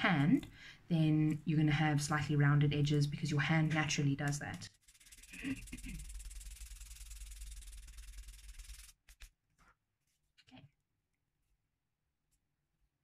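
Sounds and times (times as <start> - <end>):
sandpaper rasping on plastic: 4.6 - 9.4.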